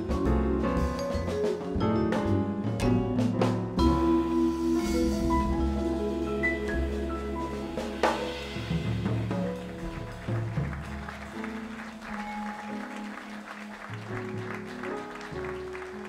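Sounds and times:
vibraphone: 0.0s - 10.0s
upright bass: 0.0s - 11.0s
piano: 0.0s - 16.0s
drum cymbals: 2.2s - 10.1s.

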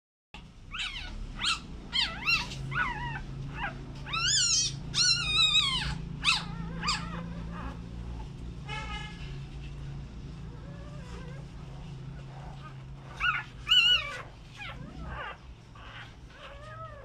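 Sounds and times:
steady low hum: 0.4s - 17.0s
puppy squealing: 0.7s - 8.2s, 10.5s - 11.5s, 12.2s - 17.0s.

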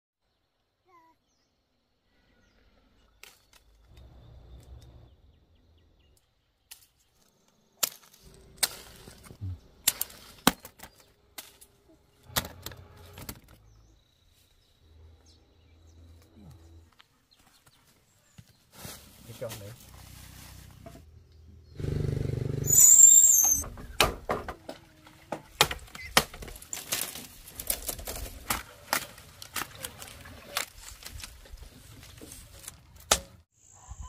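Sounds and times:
leaves and branches rustling: 6.6s - 14.9s, 16.1s - 21.2s, 24.8s - 33.5s
fruit stems snapping: 7.8s - 11.7s.

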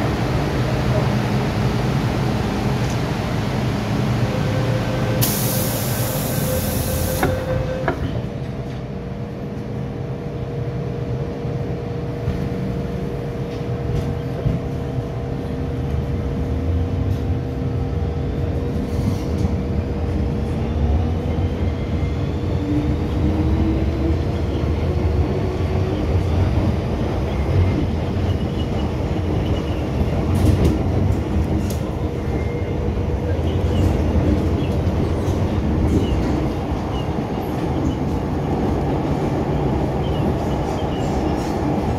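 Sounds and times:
train wheels rumbling on track: 0.0s - 41.9s
train motor whine: 4.4s - 8.2s.

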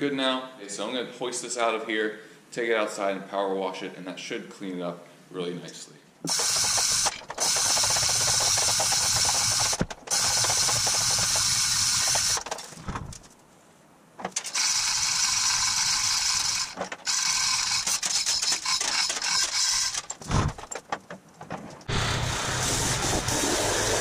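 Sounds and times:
chain hoist ratchet clicking: 6.3s - 12.7s, 14.3s - 20.6s.

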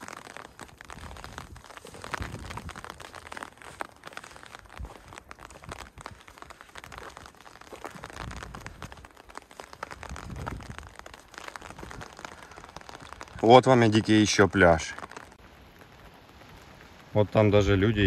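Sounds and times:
footsteps crunching on rock: 0.0s - 13.7s.

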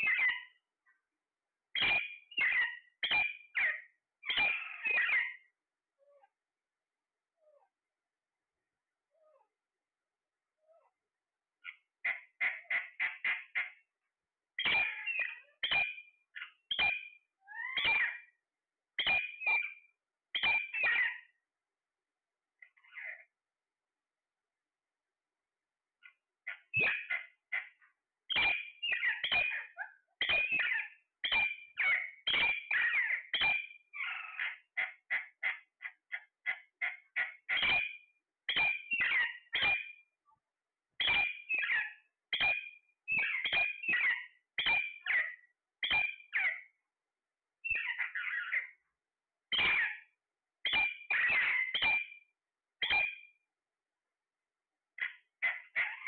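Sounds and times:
parakeets calling: 0.0s - 0.6s, 1.8s - 5.5s, 11.6s - 13.8s, 14.6s - 18.3s, 19.0s - 19.8s, 20.4s - 21.3s, 22.6s - 23.2s, 26.0s - 40.0s, 41.0s - 46.7s, 47.6s - 48.8s, 49.5s - 50.1s, 50.7s - 52.2s, 52.8s - 53.3s, 55.0s - 56.0s.

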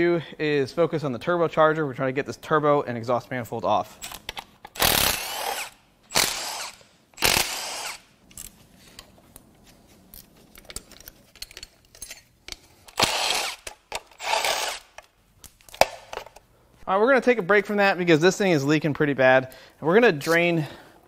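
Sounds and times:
cordless power tool spinning: 4.8s - 8.1s, 12.9s - 14.9s
small clicks and handling noise: 8.3s - 13.0s.

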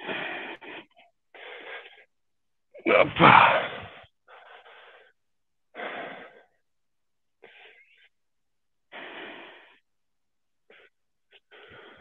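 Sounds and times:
man breathing heavily: 0.0s - 2.1s, 3.6s - 6.6s, 8.9s - 10.0s, 10.6s - 12.0s.

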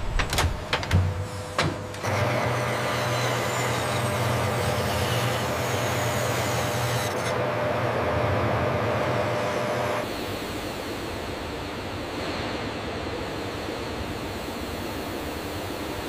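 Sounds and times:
metal lathe cutting steel: 2.0s - 10.1s.

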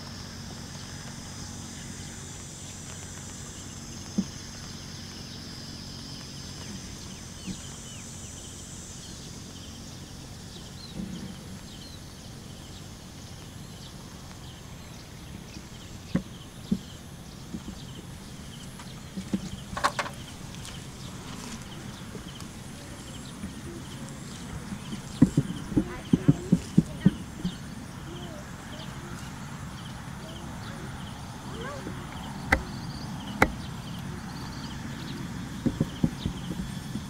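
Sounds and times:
steady background hiss: 0.0s - 37.0s
sharp knocks: 32.1s - 33.7s, 35.6s - 37.0s.

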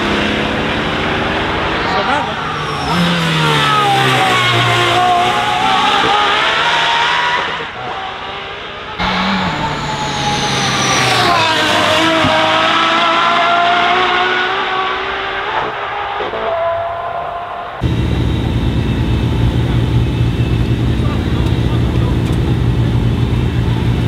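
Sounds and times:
sports car engine revving: 0.0s - 15.7s.

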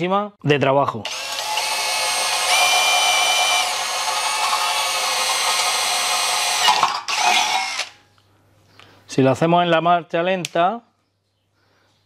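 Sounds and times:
drill bit grinding metal: 1.1s - 7.9s
cordless drill motor whine: 1.1s - 8.0s.

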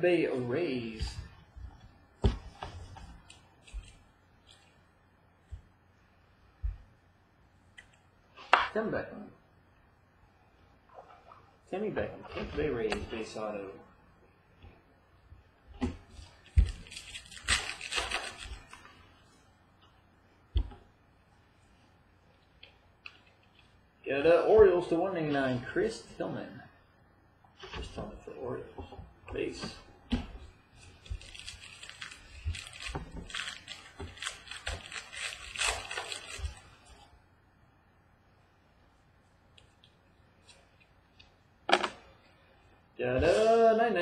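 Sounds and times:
cards rustling: 2.4s - 4.8s, 16.1s - 19.0s, 30.5s - 37.0s
foil wrapper crinkling: 16.2s - 19.0s, 30.7s - 37.1s.

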